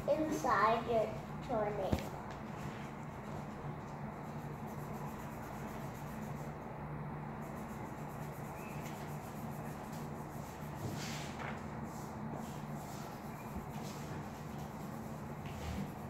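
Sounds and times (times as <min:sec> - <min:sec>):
steady low hum: 0:00.0 - 0:16.0
marker scribbling on paper: 0:02.5 - 0:06.6, 0:07.4 - 0:11.2, 0:11.9 - 0:16.0.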